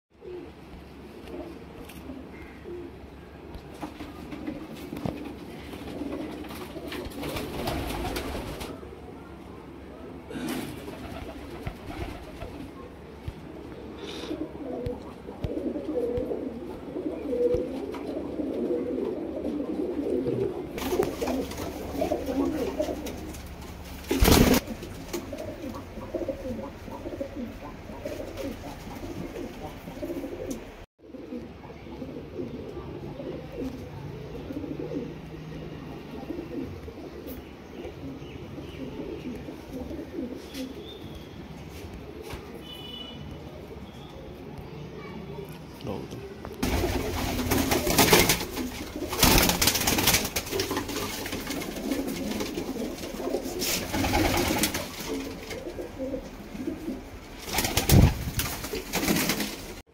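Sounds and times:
pigeons cooing: 0.2s - 43.0s, 44.5s - 59.8s.

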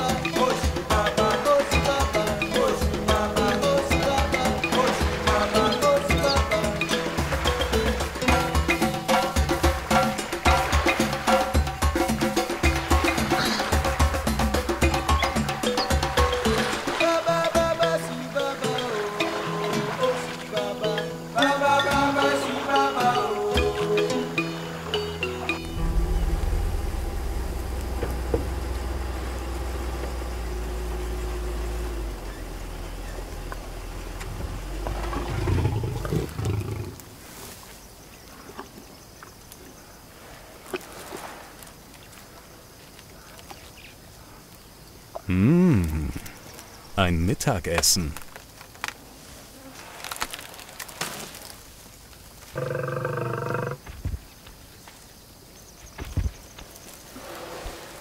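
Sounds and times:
vehicle engine rumble: 25.6s - 36.1s
lion growling: 34.3s - 37.0s, 52.5s - 53.8s
elephant call: 52.5s - 53.8s.

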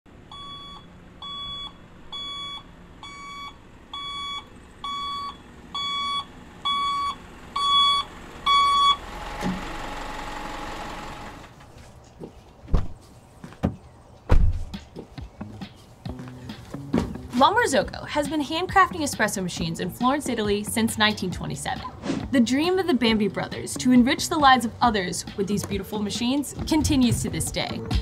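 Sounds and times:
truck reversing alarm beeping: 0.1s - 11.4s.

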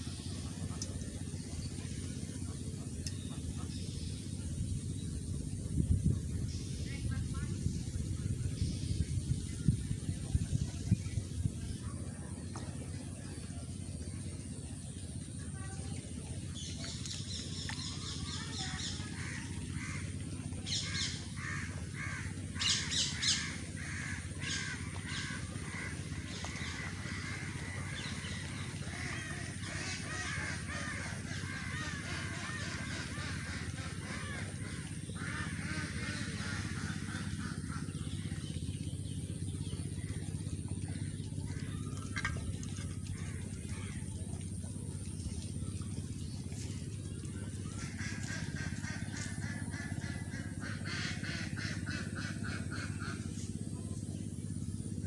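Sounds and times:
birds calling: 0.0s - 55.0s
crows cawing: 21.4s - 22.3s.

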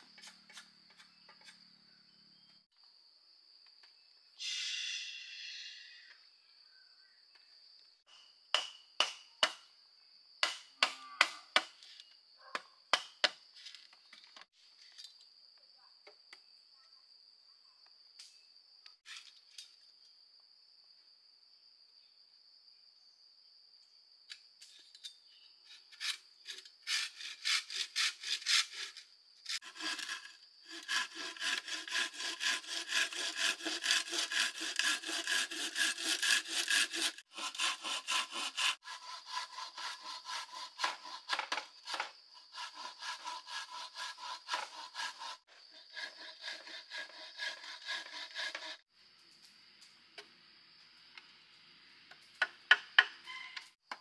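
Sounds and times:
hand saw cutting wood: 0.0s - 1.7s, 26.0s - 48.8s.

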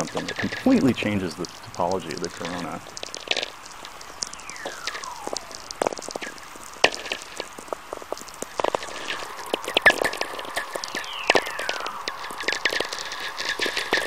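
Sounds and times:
crackle of sharp radio clicks: 1.4s - 14.0s
descending whistler tone: 4.2s - 6.4s, 10.8s - 12.8s.

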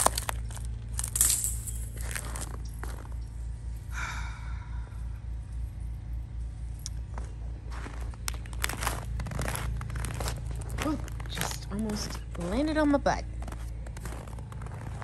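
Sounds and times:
ice crunching and clicking: 0.0s - 3.2s, 6.8s - 15.0s
generator engine hum: 0.0s - 15.0s
breathy gasp: 3.9s - 5.0s.

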